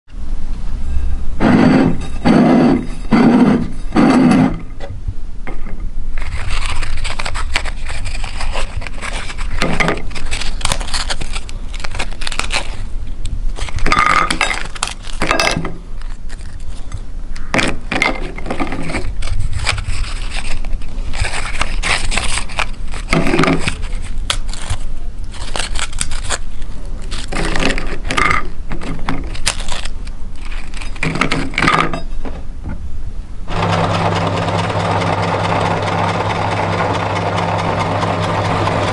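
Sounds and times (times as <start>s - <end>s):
cookies snapping and crumbling: 6.2s - 12.9s, 13.5s - 31.7s.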